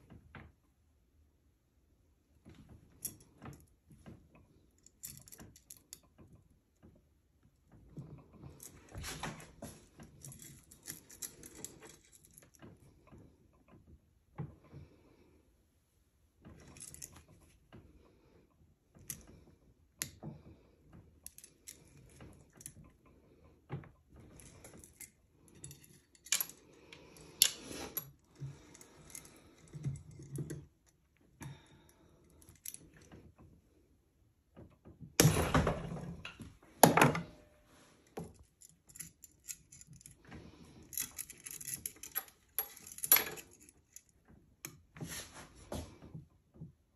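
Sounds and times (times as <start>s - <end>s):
metal chain clinking and scraping: 8.4s - 12.6s, 24.2s - 30.6s, 38.0s - 44.2s
chain jangling: 10.1s - 12.5s, 40.8s - 44.0s.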